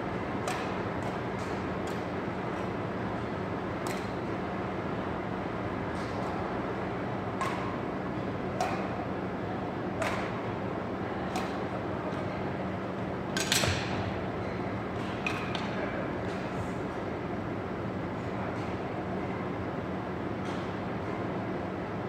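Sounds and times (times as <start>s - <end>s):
ventilation hum: 0.0s - 22.0s
racquets striking shuttlecock: 0.4s - 2.1s, 7.4s - 7.8s, 8.5s - 9.0s, 10.0s - 10.4s.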